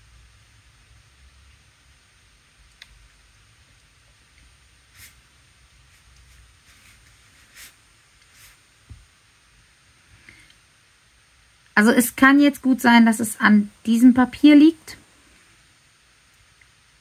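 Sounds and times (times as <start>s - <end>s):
brush strokes on paper: 4.8s - 8.9s.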